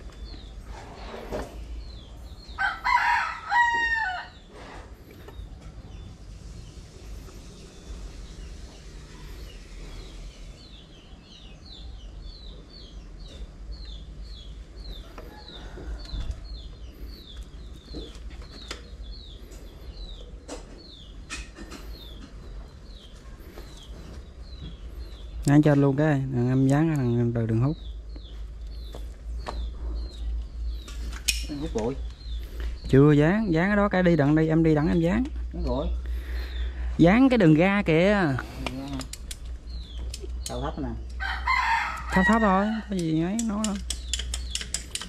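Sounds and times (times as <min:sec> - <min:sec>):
rooster crowing: 0:02.6 - 0:04.4, 0:41.2 - 0:42.9
small bird chirping: 0:04.0 - 0:45.0.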